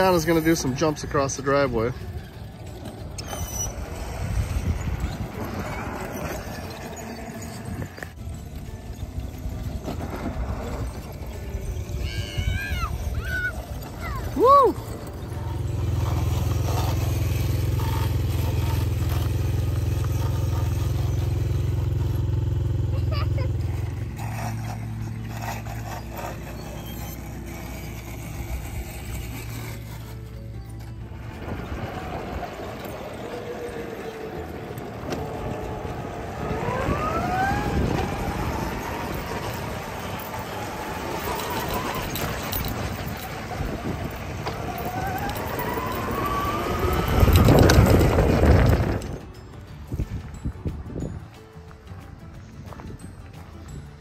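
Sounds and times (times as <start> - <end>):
electric motor whining: 0.0 - 49.2
electric quad drone: 0.0 - 51.0
tyres scraping and clattering in sand: 0.0 - 54.0.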